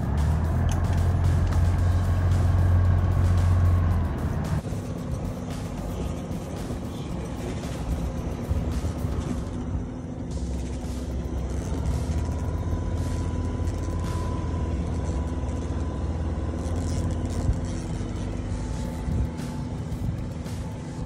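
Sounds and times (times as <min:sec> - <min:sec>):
outboard motor running: 0:00.0 - 0:21.0
wind noise: 0:18.7 - 0:21.0.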